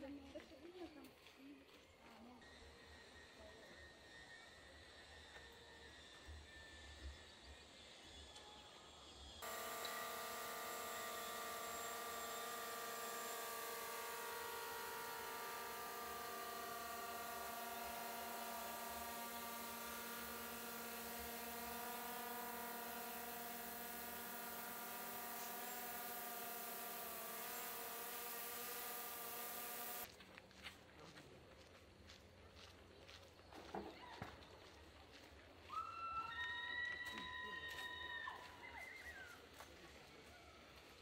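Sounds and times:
steady motor buzz: 9.4 - 30.1.

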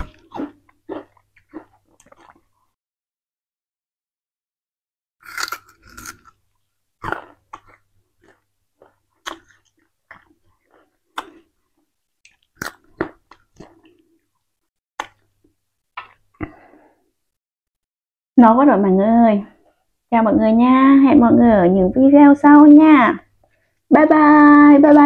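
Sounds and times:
sugarcane crunching and chewing: 0.0 - 2.7, 5.2 - 14.4.

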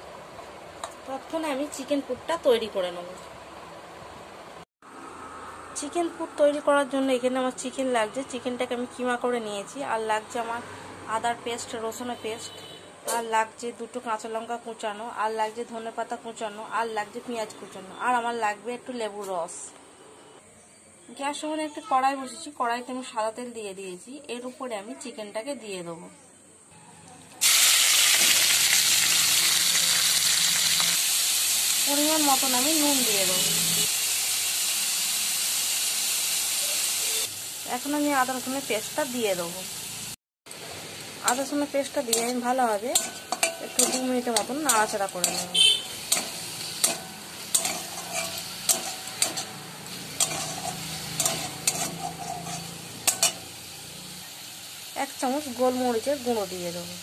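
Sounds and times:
meat sizzling in hot oil: 27.4 - 57.0
metal spatula scraping pan: 42.0 - 53.6.

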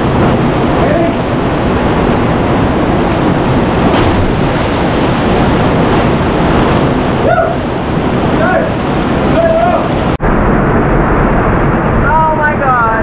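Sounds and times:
creek running: 0.0 - 10.2
waterfall rushing: 0.0 - 10.2.

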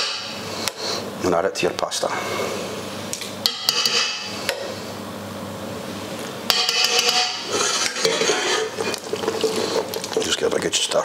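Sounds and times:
metal spoon clinking on pans: 3.5 - 4.3, 6.5 - 8.7.

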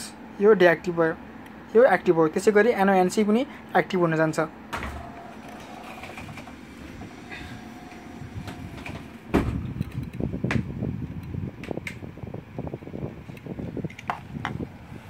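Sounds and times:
steady background hum: 0.0 - 15.0
handling noise rumbling and clicks: 4.7 - 12.1, 13.2 - 14.8.

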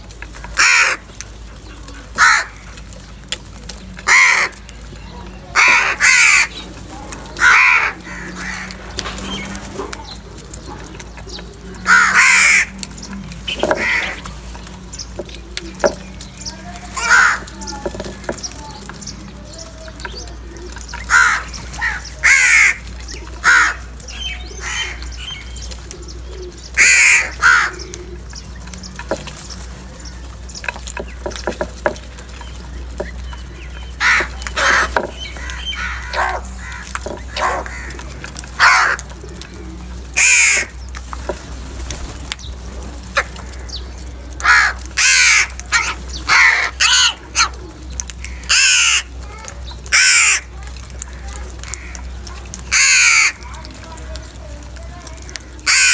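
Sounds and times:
crows cawing: 0.5 - 2.9, 4.0 - 4.8, 5.5 - 10.2, 11.7 - 14.4, 15.8 - 18.5, 20.9 - 25.5, 26.7 - 28.1, 33.8 - 40.9, 43.1 - 53.8, 55.2 - 55.9.

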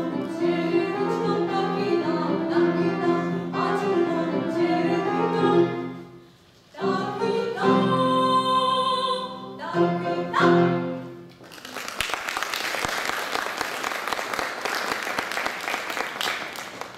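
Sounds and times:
piano accompaniment: 0.0 - 11.3
woman singing: 6.8 - 10.8
audience applause: 11.4 - 16.9.

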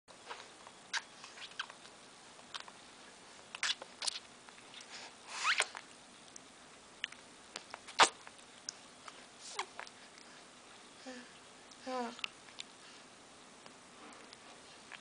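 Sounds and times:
baby sucking and smacking: 0.3 - 2.8, 3.5 - 10.3.

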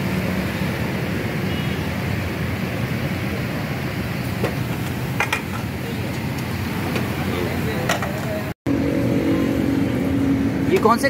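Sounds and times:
street traffic roar: 0.0 - 11.0.

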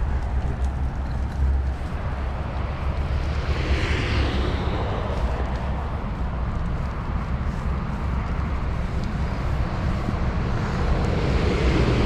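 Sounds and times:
highway traffic passing: 0.0 - 12.0
steady low rumble: 0.0 - 12.0.

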